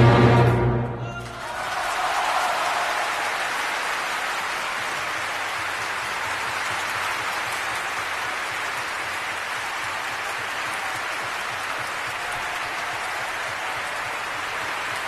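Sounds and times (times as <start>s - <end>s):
audience applauding: 0.1s - 15.0s.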